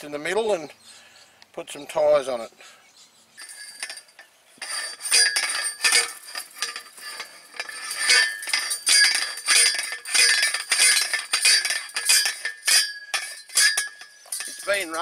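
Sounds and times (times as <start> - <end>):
metal picket clanking: 3.4 - 15.0.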